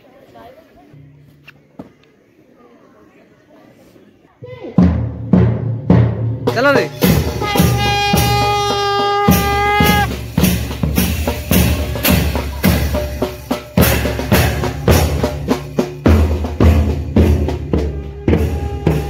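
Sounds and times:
drum hits: 4.8 - 19.0.

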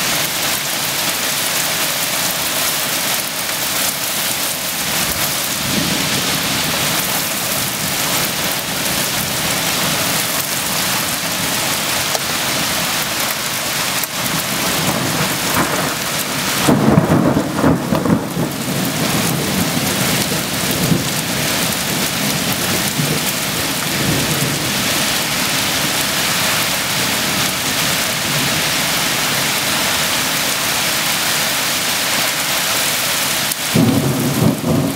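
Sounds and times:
heavy rain pouring: 0.0 - 34.9
rolling thunder rumble: 4.7 - 29.1, 33.7 - 34.9.

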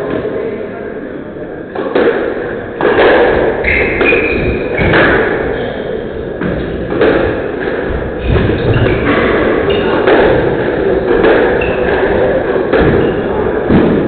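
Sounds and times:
shoes squeaking on wooden floor: 3.6 - 5.8.

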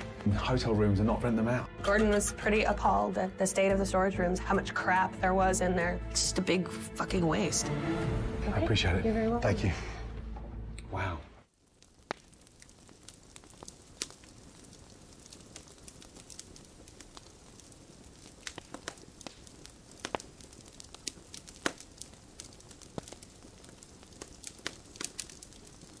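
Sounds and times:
crackling pops and clicks: 10.8 - 26.0.

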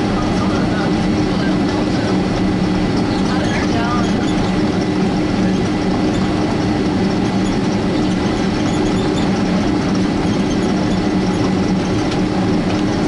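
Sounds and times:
constant low hum: 0.0 - 13.0
jet engines droning: 0.0 - 13.0.

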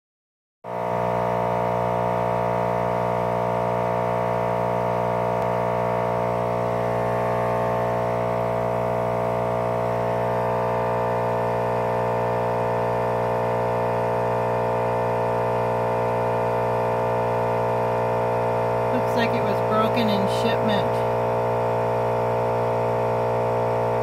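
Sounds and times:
blower fan motor humming: 0.7 - 24.0.

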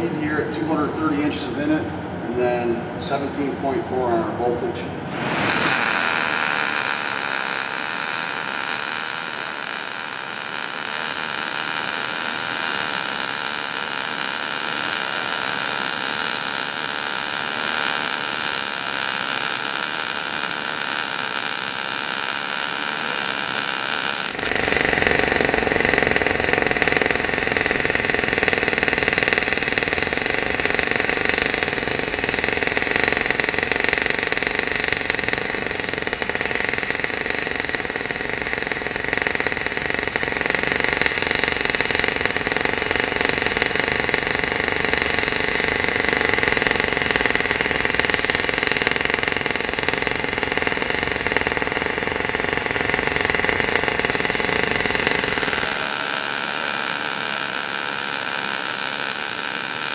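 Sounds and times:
welding arc buzzing: 5.1 - 25.2, 55.0 - 59.9.

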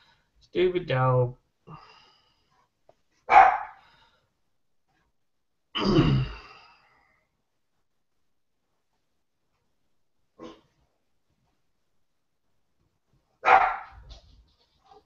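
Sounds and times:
dog barking: 3.3 - 3.8, 13.4 - 14.1.

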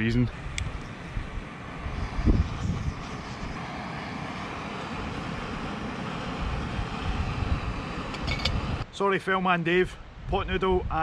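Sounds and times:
gas stove burning hiss: 0.4 - 8.8.

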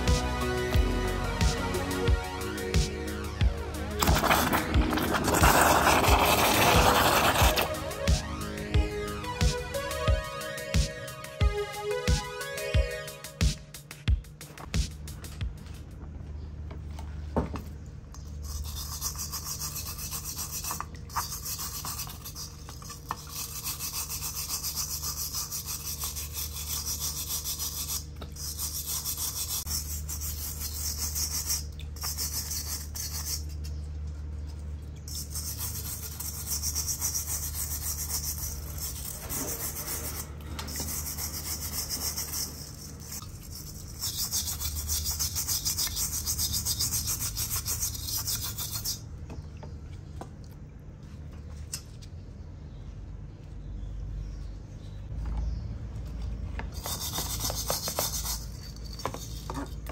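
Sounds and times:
brush scrubbing metal grille: 4.0 - 7.8, 18.4 - 33.7, 35.0 - 49.0.

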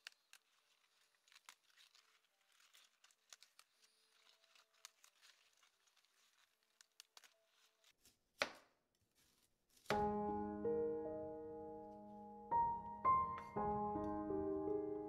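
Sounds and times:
lettuce leaves snapping: 0.0 - 8.7.

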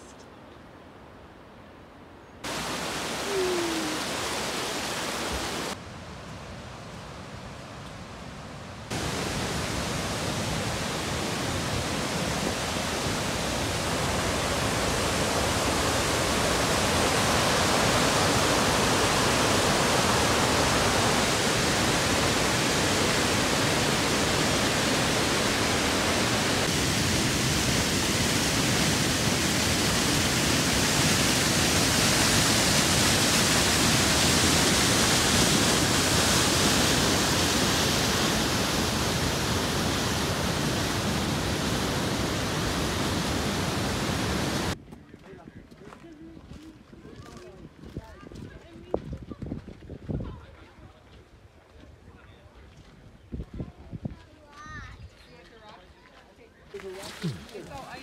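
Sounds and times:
stream cascading over rocks: 2.4 - 5.8, 8.9 - 44.8.

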